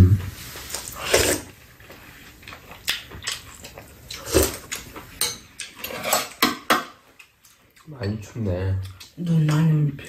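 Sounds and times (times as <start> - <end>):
spoon and chopsticks clinking bowls: 5.1 - 6.9.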